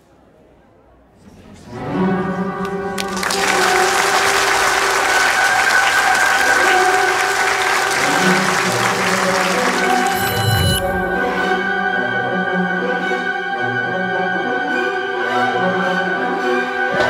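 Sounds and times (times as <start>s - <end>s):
audience applauding: 2.6s - 11.2s.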